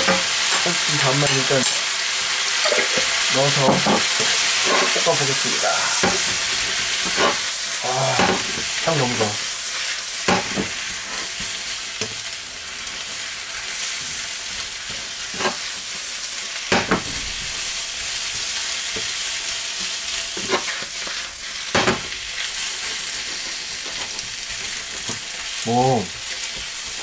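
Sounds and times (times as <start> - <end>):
vegetables sizzling in hot oil: 0.0 - 27.0
spatula scraping a wok: 4.0 - 5.1.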